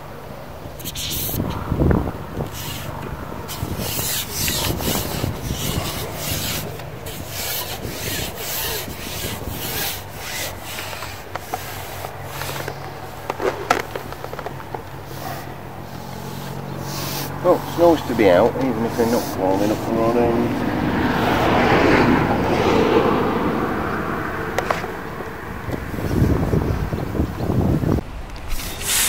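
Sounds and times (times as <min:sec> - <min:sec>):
fishing pole scraping on roller: 0:00.8 - 0:01.5, 0:02.4 - 0:23.0, 0:28.4 - 0:29.0.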